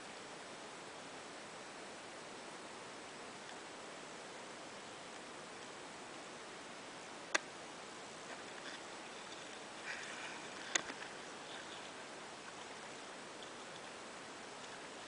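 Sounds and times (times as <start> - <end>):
water hissing around kayak: 3.3 - 15.0
faint small ticks: 3.4 - 3.6, 7.3 - 7.5, 8.2 - 14.0.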